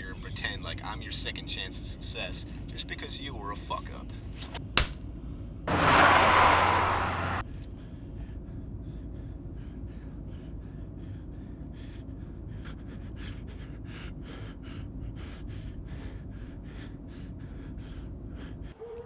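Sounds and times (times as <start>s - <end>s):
car passing close: 5.7s - 7.4s
low car rumble: 5.7s - 7.4s
quick gasping breaths: 7.8s - 19.0s.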